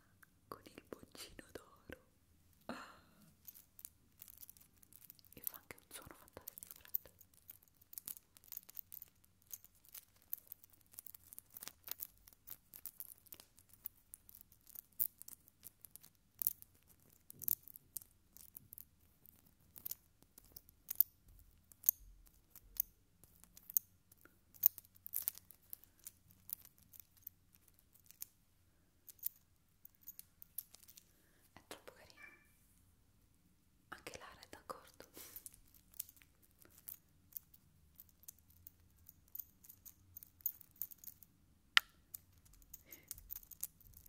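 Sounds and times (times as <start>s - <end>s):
metal pendant clicking: 3.4s - 5.4s, 6.5s - 28.4s, 29.0s - 31.1s, 35.2s - 44.0s.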